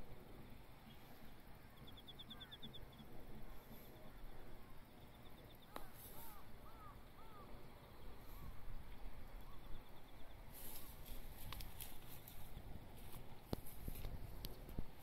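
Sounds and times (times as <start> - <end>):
bird chirps: 1.7 - 3.1.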